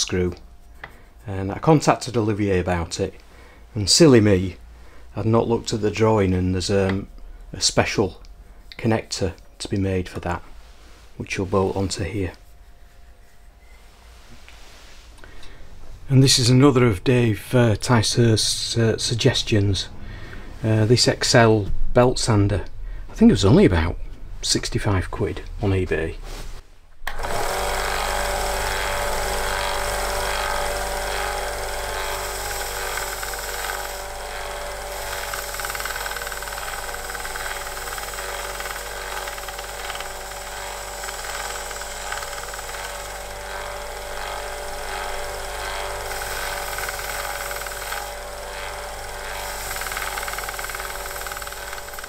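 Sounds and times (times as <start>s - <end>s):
belt sander motor humming: 27.0s - 52.0s
metal part sanded on belt: 27.1s - 52.0s.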